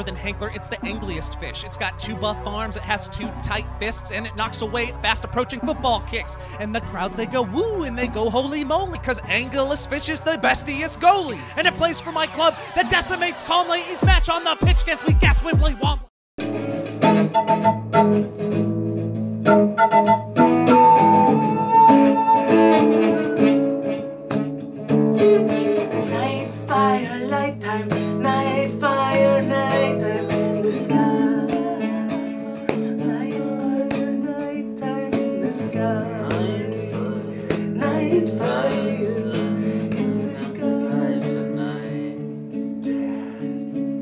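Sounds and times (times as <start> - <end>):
acoustic guitar strummed: 16.4 - 35.5
wooden flute melody: 16.8 - 18.4, 19.4 - 24.0.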